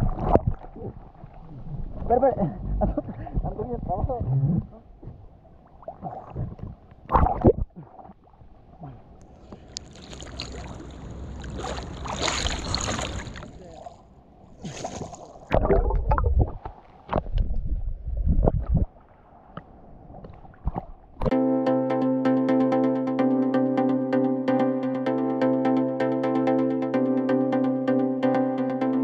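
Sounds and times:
sea water sloshing and splashing: 5.0 - 21.3.

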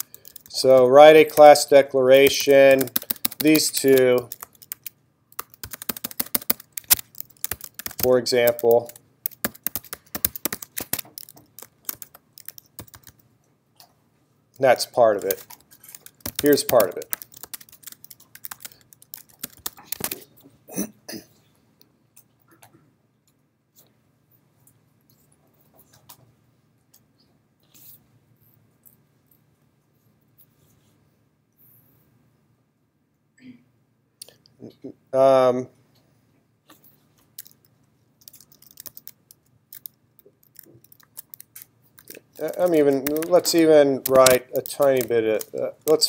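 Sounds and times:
faint typing on keyboard: 0.0 - 13.9, 14.5 - 20.5, 36.6 - 46.0
keyboard key clicks: 15.2 - 20.2.

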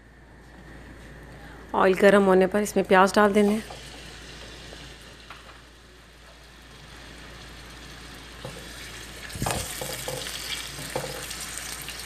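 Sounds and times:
onions sizzling in hot oil: 3.1 - 12.0.

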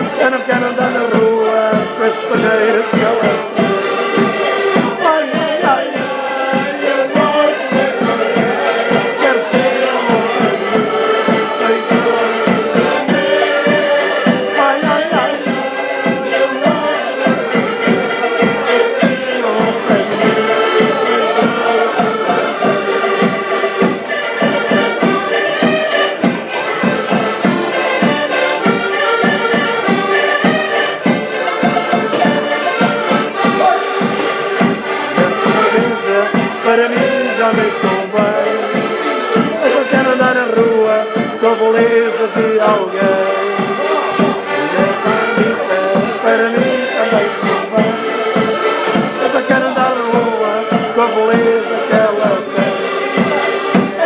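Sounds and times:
bass drum beating steady rhythm: 0.0 - 54.0
button accordions playing: 0.0 - 54.0.

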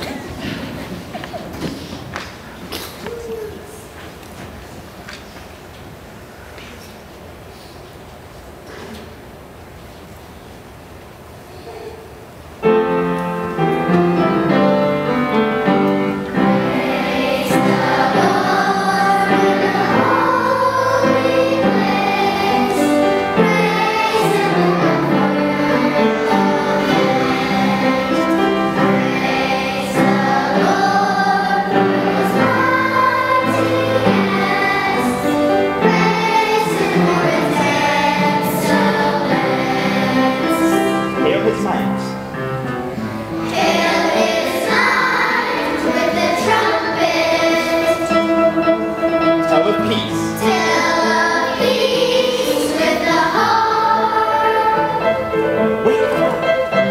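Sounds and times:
children's choir singing: 0.0 - 2.4, 12.6 - 56.9
instrumental accompaniment: 12.6 - 56.9.

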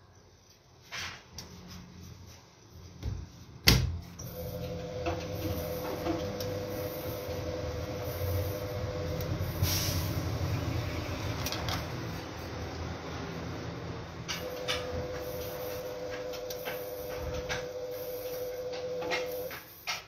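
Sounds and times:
washing machine motor humming: 3.1 - 20.0
motor whine: 4.2 - 12.4, 14.4 - 19.6.

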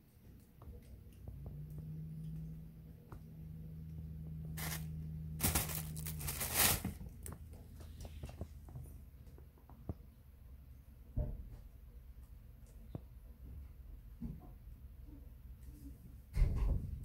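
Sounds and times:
plastic bags crinkling: 4.6 - 7.4.

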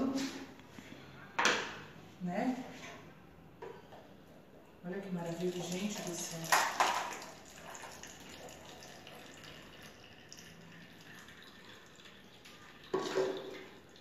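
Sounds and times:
juice trickling through strainer: 5.2 - 14.0.

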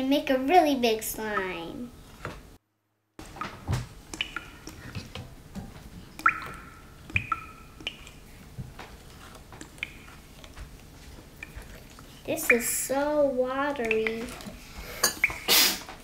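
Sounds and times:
spoon stirring slime: 4.1 - 5.1, 5.8 - 15.5.

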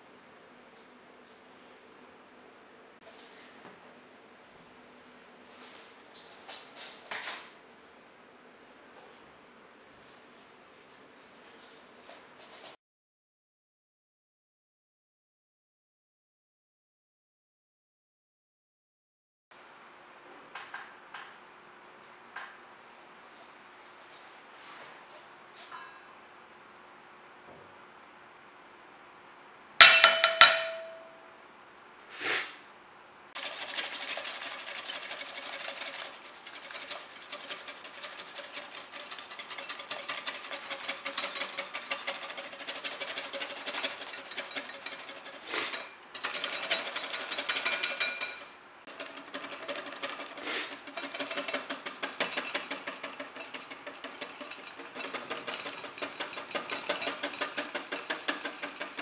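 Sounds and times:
ringing metallic clang: 29.8 - 31.3
small machine rattling: 33.4 - 59.0.

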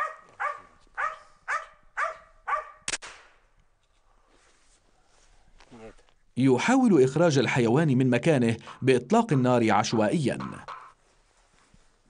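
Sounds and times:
dog barking: 0.0 - 2.8
gunshot: 2.9 - 3.4.

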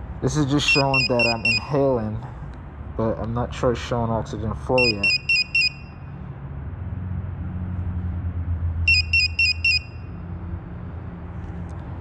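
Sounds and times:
short high electronic beeps: 0.7 - 1.6.

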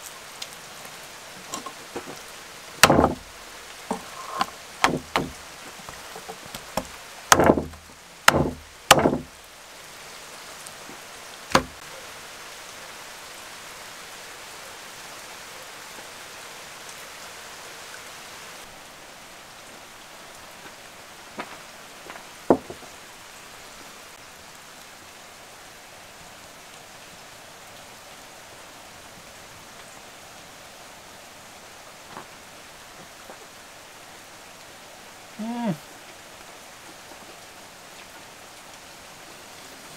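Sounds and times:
steady hiss: 0.0 - 39.9
small knocks: 1.4 - 2.2, 2.8 - 3.3, 3.9 - 9.4, 11.5 - 11.8, 21.4 - 22.9
cleaver chopping meat on steel: 2.8 - 3.2, 4.8 - 5.4, 6.8 - 9.3, 11.6 - 11.8.

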